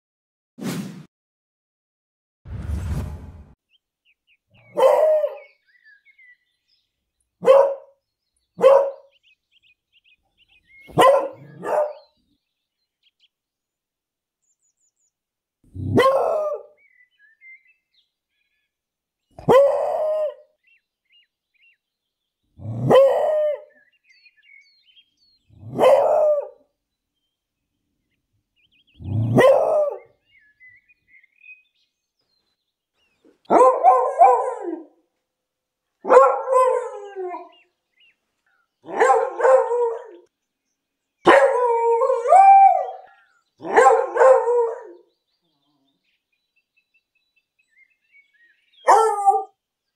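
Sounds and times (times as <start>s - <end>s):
dog barking: 4.6s - 5.6s, 7.4s - 8.0s, 8.6s - 9.1s, 10.9s - 12.1s, 15.8s - 16.7s, 19.4s - 20.4s, 22.8s - 23.6s, 25.6s - 26.6s, 29.1s - 30.1s, 33.5s - 34.9s, 36.0s - 37.0s, 38.8s - 40.3s, 41.2s - 45.0s, 48.8s - 49.6s
dog howling with wavering pitch: 41.4s - 43.1s.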